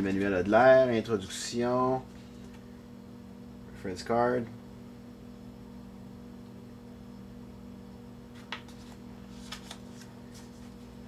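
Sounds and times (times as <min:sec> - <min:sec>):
electrical hum: 0:00.0 - 0:11.0
page turning rustle: 0:08.3 - 0:11.0.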